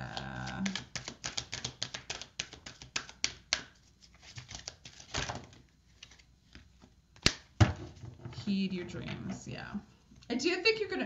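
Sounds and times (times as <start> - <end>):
cards shuffling: 0.0 - 7.5.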